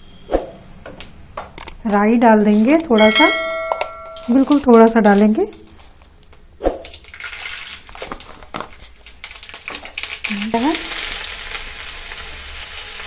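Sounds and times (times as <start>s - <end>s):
seeds popping in hot oil: 1.8s - 13.0s
onions sizzling in oil: 7.1s - 13.0s.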